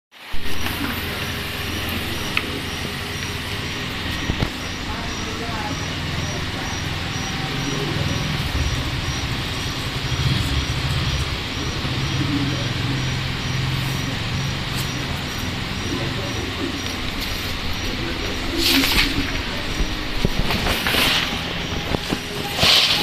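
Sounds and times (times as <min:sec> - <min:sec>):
steady hum and hiss: 0:00.2 - 0:23.0.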